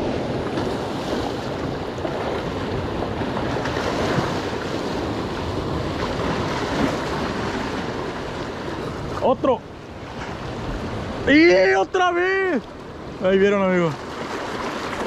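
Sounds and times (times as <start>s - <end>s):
surf washing against rocks: 0.0s - 15.0s.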